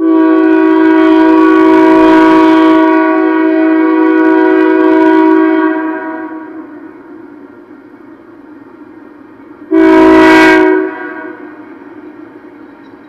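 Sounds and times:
locomotive air horn: 0.0 - 7.1, 9.7 - 12.0.

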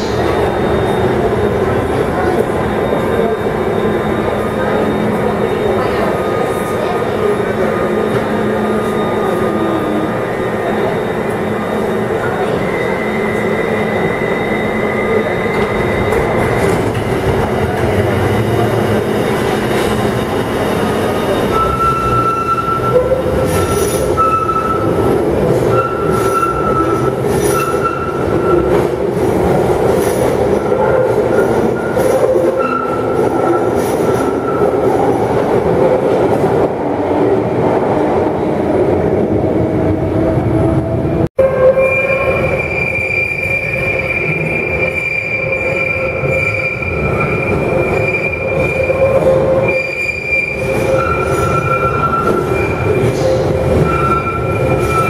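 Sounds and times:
wheel squeals against rail: 0.0 - 17.8, 20.8 - 29.2, 30.0 - 35.1, 41.6 - 55.0
train rumble in tunnel: 0.0 - 55.0.

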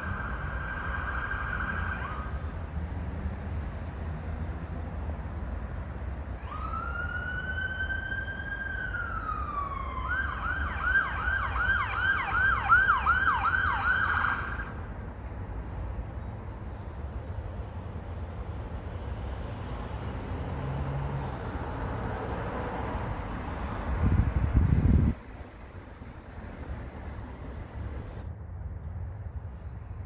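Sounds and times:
police siren wailing and yelping: 0.0 - 2.4, 6.4 - 14.7.

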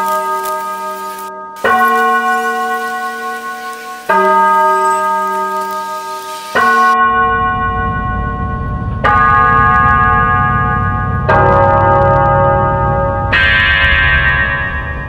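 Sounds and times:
bell-like chimes ringing: 0.0 - 15.0
low rumbling drone: 5.6 - 15.0.

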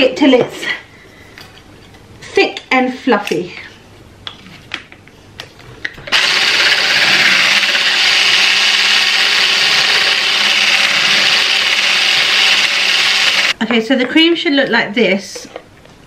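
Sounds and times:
electric whisk whirring: 6.1 - 13.6.

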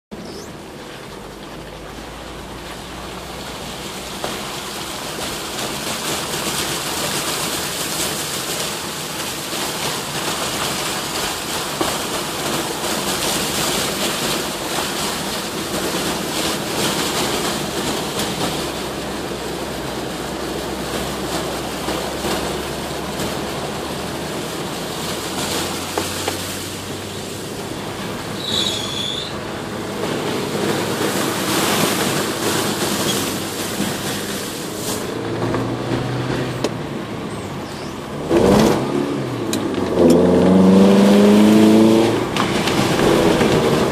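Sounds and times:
engine low hum: 0.1 - 43.9
water spraying under car: 0.1 - 43.9
brief high squeak: 28.4 - 29.4, 37.3 - 38.0.

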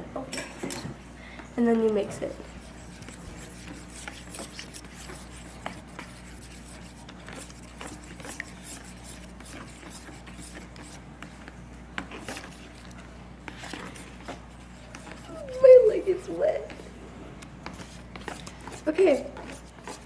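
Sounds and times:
spoon scraping plastic tub: 12.0 - 15.7.

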